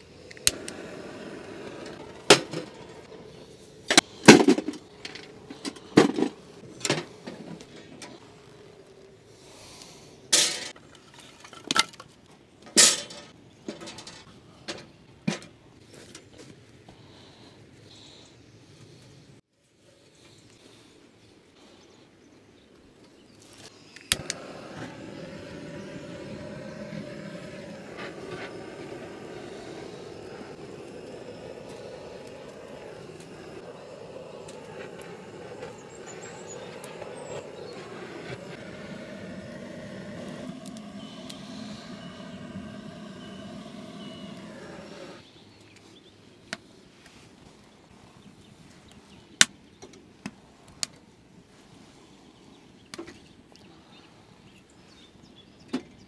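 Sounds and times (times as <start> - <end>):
blowtorch hissing: 0.0 - 10.8, 23.6 - 45.2.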